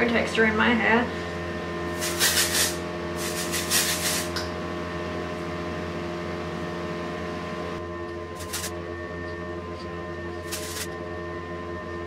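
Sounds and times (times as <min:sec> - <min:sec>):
hairspray hissing: 0:02.0 - 0:04.4, 0:08.4 - 0:08.7, 0:10.5 - 0:10.9.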